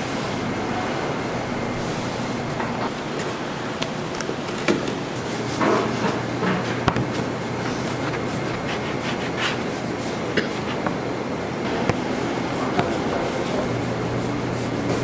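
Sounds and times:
noisy background: 0.0 - 15.0
steady low hum: 0.0 - 15.0.

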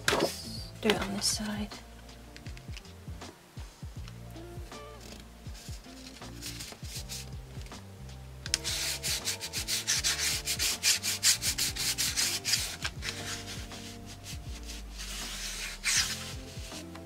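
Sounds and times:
hand rubbing paper: 4.8 - 7.8, 8.5 - 17.0.

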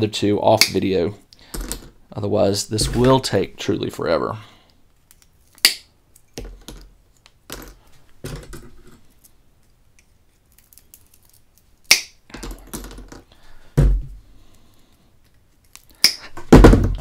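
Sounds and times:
loud knock: 16.5 - 17.0.

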